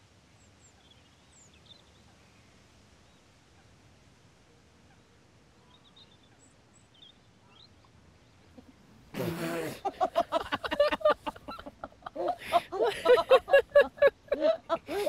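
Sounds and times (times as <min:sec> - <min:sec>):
faint bird chirps: 0:04.8 - 0:08.8
short vocal sound: 0:09.1 - 0:09.9.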